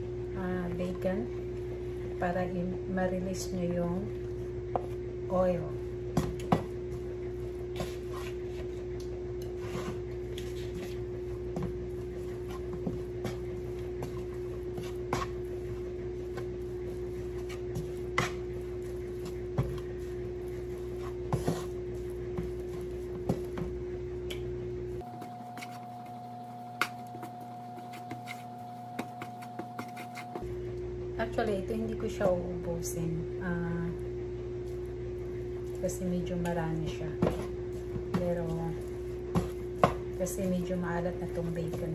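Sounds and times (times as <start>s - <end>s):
background hum: 0.0s - 41.9s
wooden spatula scraping frying pan: 16.4s - 23.5s.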